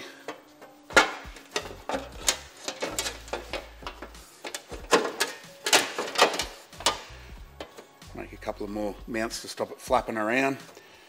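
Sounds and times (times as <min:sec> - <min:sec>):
metal panel knocking and scraping: 0:00.9 - 0:07.9.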